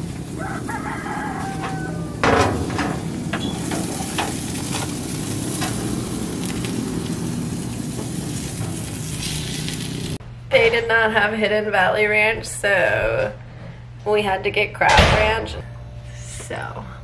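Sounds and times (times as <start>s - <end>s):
steaks sizzling on grill: 0.0s - 10.2s
grill lid metal clunk: 0.9s - 6.7s.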